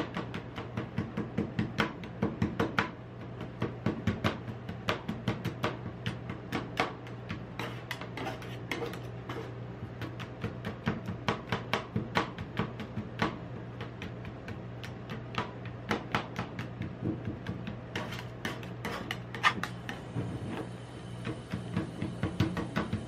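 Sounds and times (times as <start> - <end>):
metal spatulas clacking and scraping: 18.0 - 19.8.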